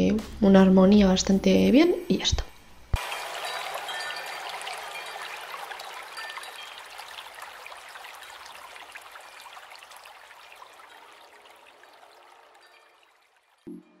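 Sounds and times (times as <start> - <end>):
trickling hiss with crackles: 3.0 - 13.7.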